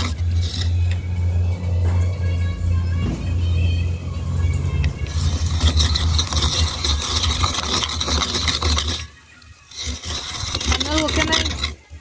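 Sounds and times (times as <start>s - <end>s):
coconut grater rasping scrape: 0.0s - 1.0s, 4.8s - 12.0s
grater motor rumble: 0.0s - 2.0s, 3.8s - 12.0s.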